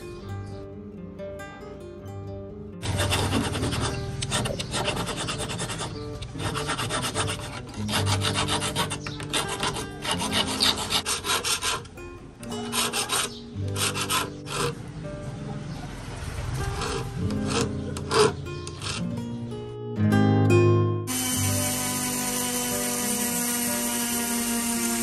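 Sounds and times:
hand file rasping on metal: 2.8 - 14.8, 16.6 - 19.1.

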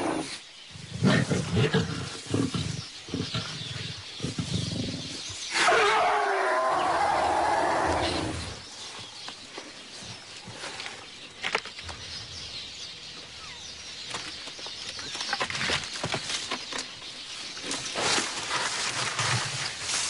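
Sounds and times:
leaves rustling: 14.0 - 20.0
branches cracking: 14.1 - 20.0.

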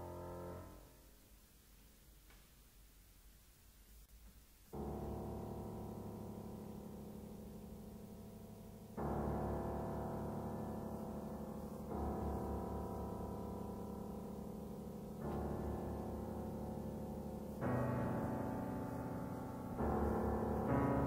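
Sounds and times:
piano chords: 4.7 - 21.0.

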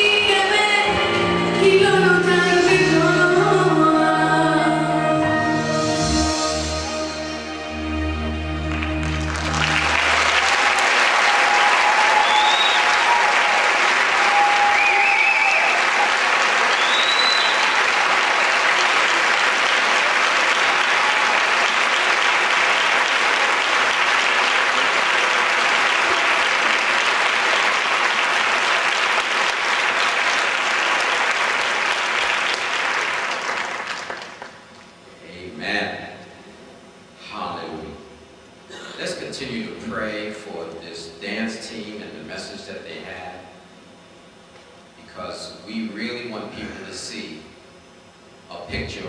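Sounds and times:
audience applauding: 8.6 - 34.9
cheers and whistles: 9.8 - 18.9, 20.6 - 21.7.

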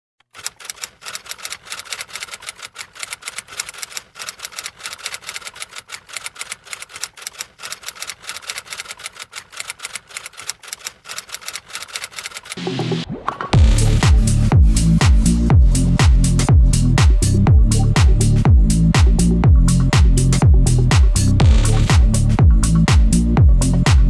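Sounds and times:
rapid keyboard clicks: 0.2 - 12.6.

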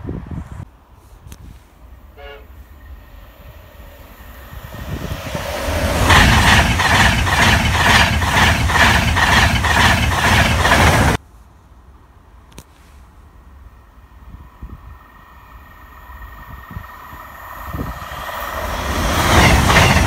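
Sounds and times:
express train passing: 1.8 - 11.2, 13.2 - 20.0
wheels clattering over rail joints: 5.4 - 11.2.

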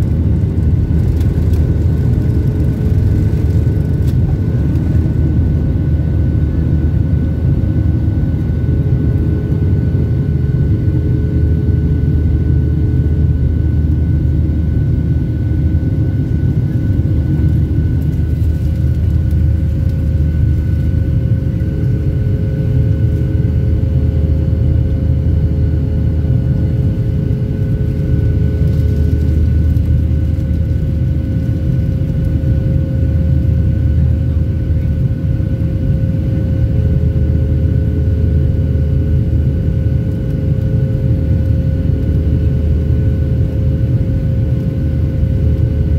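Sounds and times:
airplane cabin engine rumble: 0.0 - 45.9.

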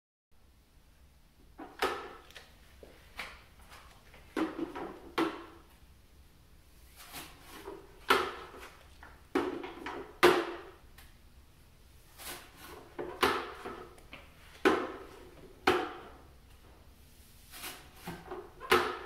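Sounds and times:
broom scraping hard floor: 6.7 - 8.9, 12.0 - 15.4, 16.6 - 18.9.

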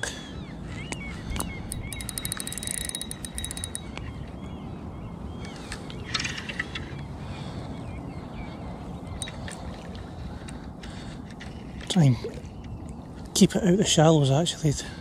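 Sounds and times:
fishing reel drag clicking: 1.7 - 4.0.

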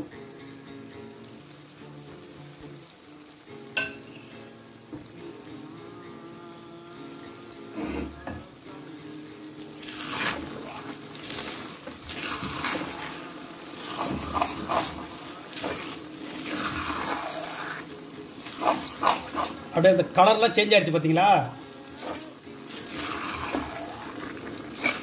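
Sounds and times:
food sizzling in a pan: 0.0 - 25.0
metal spatula scraping a pan: 3.8 - 4.5, 9.8 - 19.8, 21.6 - 25.0.

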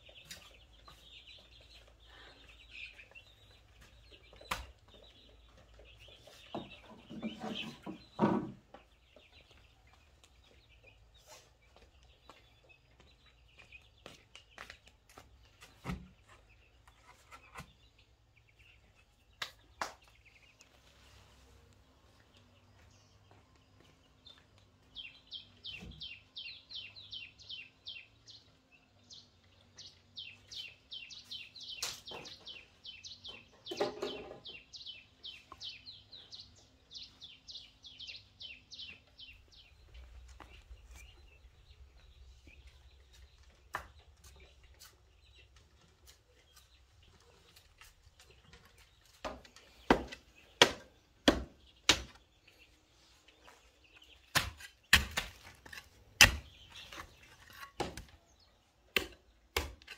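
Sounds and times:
bird chirping: 0.0 - 59.9
digging blade striking stony soil: 54.3 - 57.1, 58.9 - 59.9.

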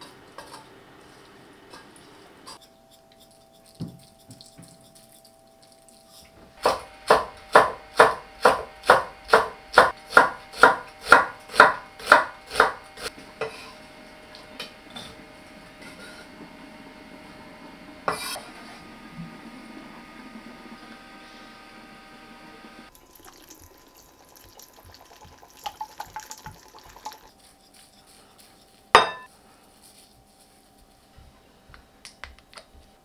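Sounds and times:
knife chopping on cutting board: 6.6 - 12.8.

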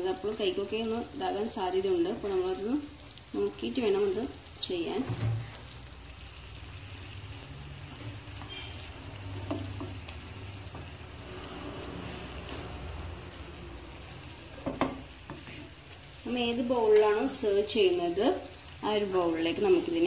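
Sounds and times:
caramel sizzling in a pan: 0.0 - 20.0.

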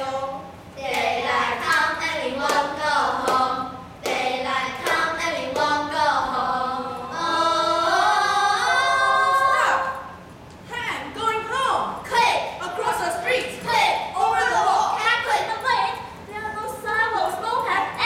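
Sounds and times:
children singing in unison: 0.8 - 9.6.

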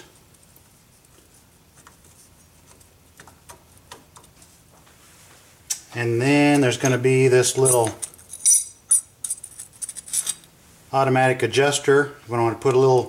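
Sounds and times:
metal parts clicking and tapping: 7.6 - 10.5.

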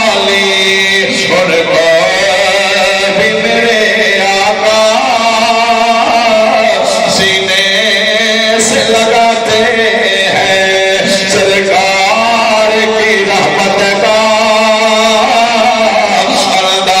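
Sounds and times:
man singing a slow chant: 0.0 - 17.0.

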